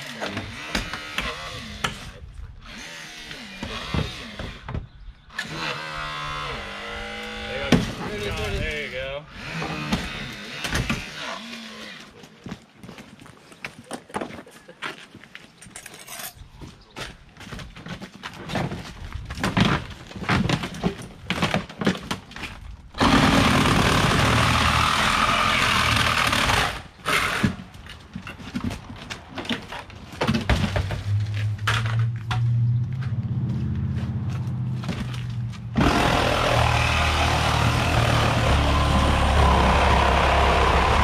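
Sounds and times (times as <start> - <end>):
loud steady machine noise: 23.0 - 26.8, 35.8 - 41.0
motor running: 35.8 - 41.0.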